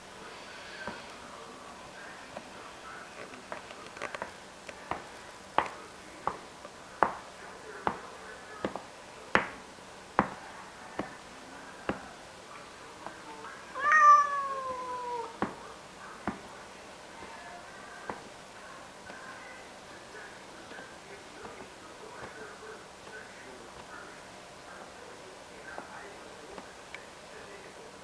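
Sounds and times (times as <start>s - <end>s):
cats fighting: 13.6s - 15.4s
long falling cat meow: 13.8s - 15.4s.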